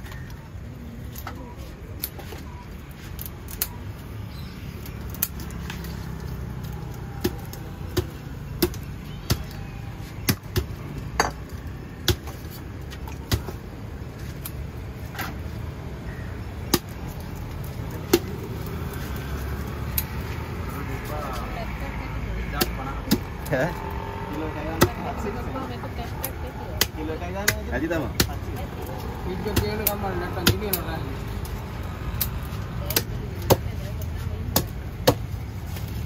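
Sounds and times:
knife chopping fish on wood: 0:07.2 - 0:09.5.

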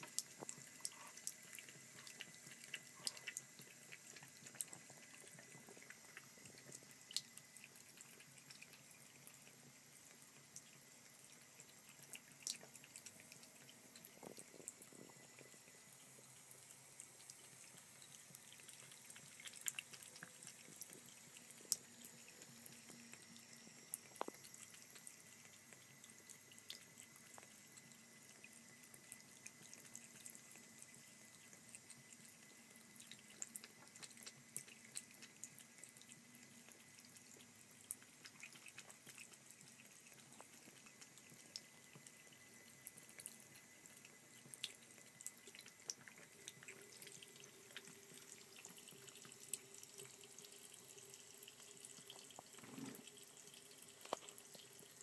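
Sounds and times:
cat lapping water: 0:00.0 - 0:55.0
faucet water trickling: 0:00.0 - 0:55.0.

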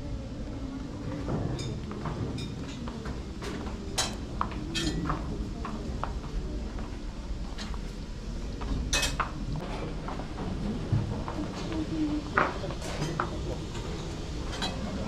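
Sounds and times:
dishes and utensils clinking: 0:01.2 - 0:05.3, 0:08.9 - 0:09.8, 0:12.4 - 0:15.0.

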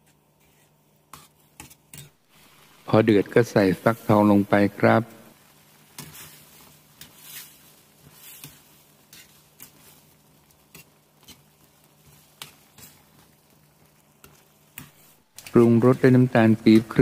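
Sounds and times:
spoon scraping metal pan: 0:06.0 - 0:13.3, 0:14.2 - 0:16.1.

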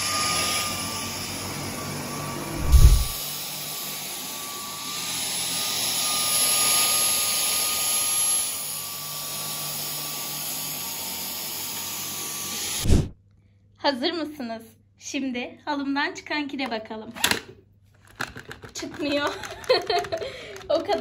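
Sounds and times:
vacuum cleaner running: 0:00.0 - 0:13.1.

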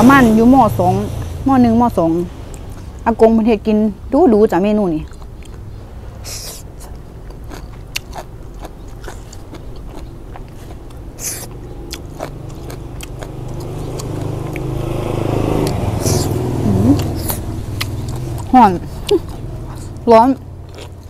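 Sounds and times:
mouth chewing and lip smacks: 0:05.0 - 0:14.8, 0:15.6 - 0:21.0.

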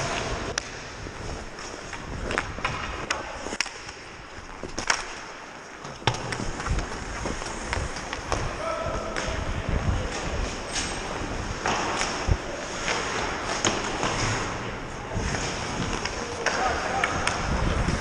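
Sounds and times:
wind noise: 0:00.0 - 0:03.5, 0:06.1 - 0:13.3, 0:15.0 - 0:18.0
hockey sticks and puck clacking: 0:00.0 - 0:18.0
skates scraping on ice: 0:00.0 - 0:18.0.

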